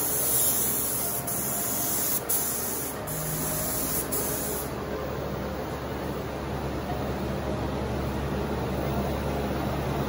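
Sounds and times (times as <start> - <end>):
spray gun hissing: 0.0 - 4.7.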